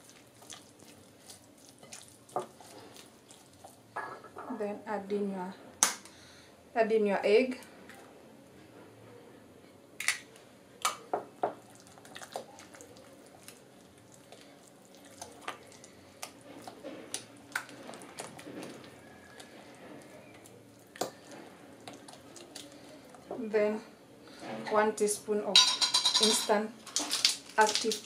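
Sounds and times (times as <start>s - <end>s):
wet squelching stirring: 0.0s - 3.9s, 11.4s - 23.3s.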